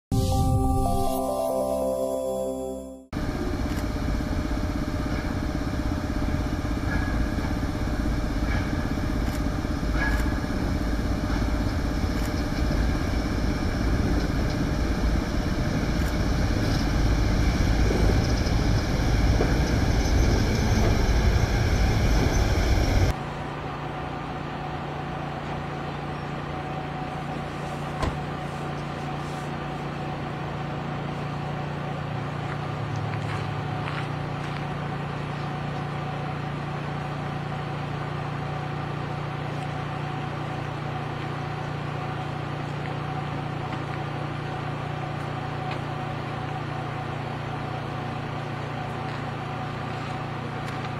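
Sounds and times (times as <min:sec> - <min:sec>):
steady low hum: 0:03.1 - 0:50.9
train rumbling: 0:03.2 - 0:25.0.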